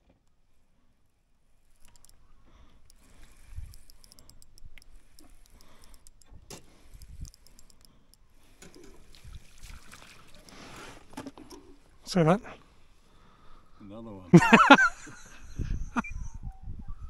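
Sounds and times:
fishing reel ticking: 1.3s - 9.6s, 10.2s - 12.1s.

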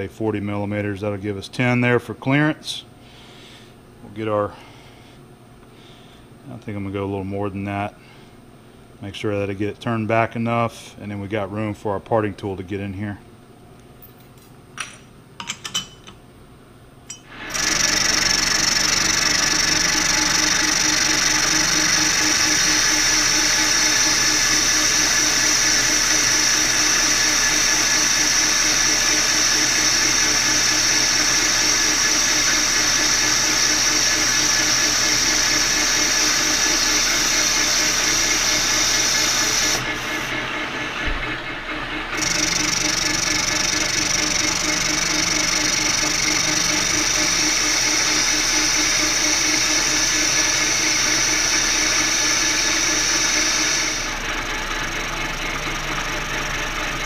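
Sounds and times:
metal lathe humming: 17.1s - 57.0s.

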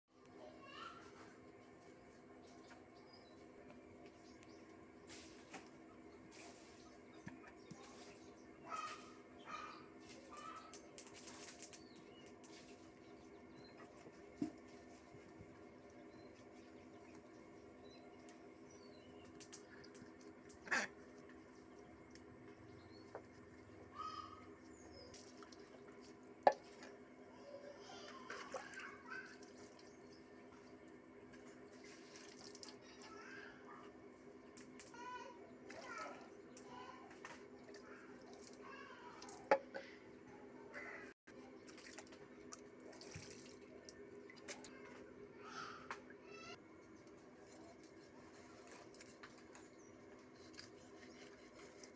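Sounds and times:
water splashing and dripping: 25.0s - 26.9s, 28.2s - 30.6s, 31.4s - 33.1s, 35.6s - 39.6s, 41.4s - 45.0s.

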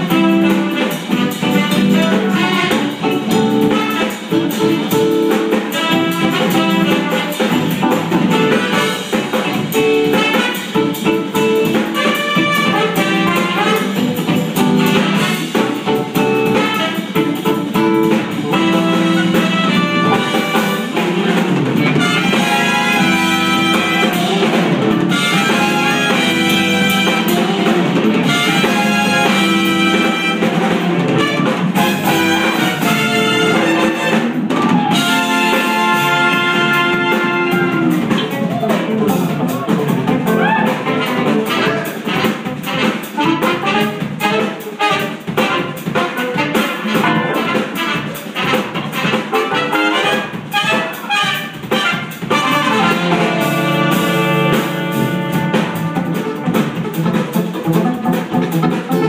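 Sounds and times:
jazz fusion band playing: 0.0s - 59.0s
horns holding long chords: 18.5s - 38.0s, 52.4s - 56.3s.

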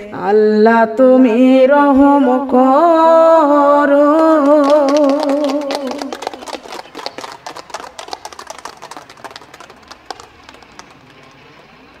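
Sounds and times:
people clapping: 4.1s - 12.0s.

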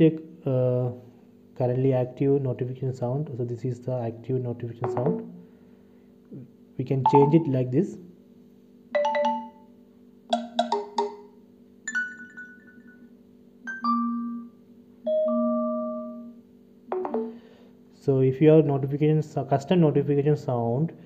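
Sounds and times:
phone notification chimes: 7.1s - 7.5s, 9.0s - 9.6s, 11.9s - 13.0s, 16.9s - 17.4s.

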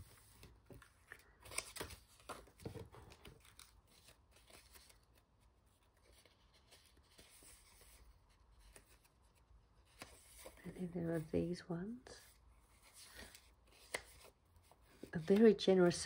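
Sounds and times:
paper crinkling: 0.0s - 11.3s.

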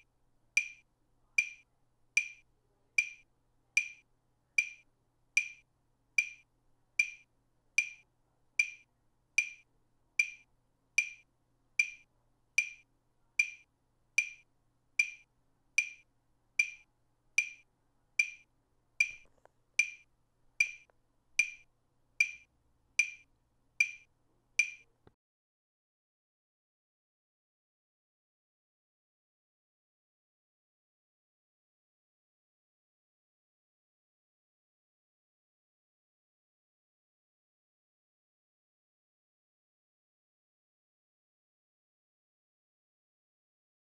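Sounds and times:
click track ticks: 0.6s - 0.8s, 1.4s - 1.6s, 2.2s - 2.4s, 3.0s - 3.2s, 3.8s - 4.0s, 4.6s - 25.2s.

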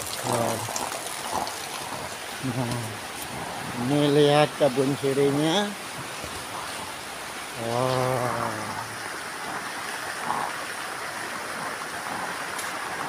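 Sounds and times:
rain on a greenhouse roof: 0.0s - 13.0s
man humming: 7.6s - 8.9s.

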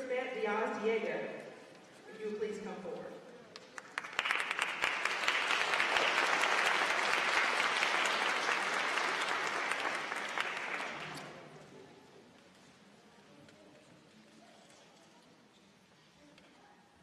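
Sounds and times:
audience applauding: 3.6s - 11.5s.

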